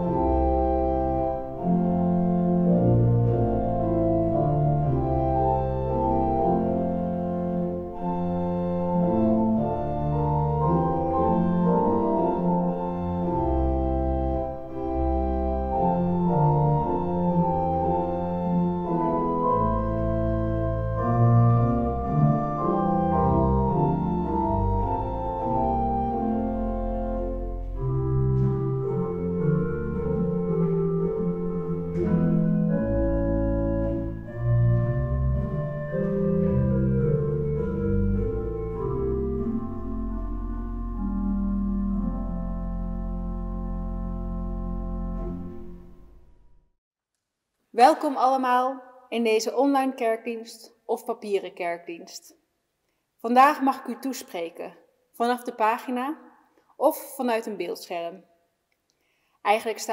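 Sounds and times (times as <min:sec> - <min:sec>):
pipe organ playing a hymn: 0:00.0 - 0:46.3.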